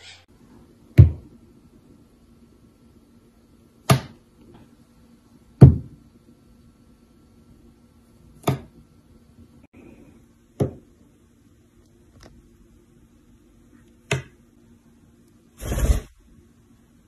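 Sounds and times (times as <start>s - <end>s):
sharp knocks on a countertop: 1.0s - 1.3s, 3.9s - 4.2s, 5.6s - 6.0s, 8.4s - 8.7s, 10.6s - 10.8s.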